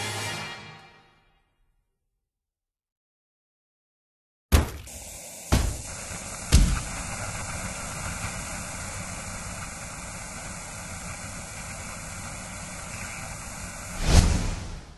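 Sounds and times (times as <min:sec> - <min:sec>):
static hiss: 0:04.9 - 0:14.9.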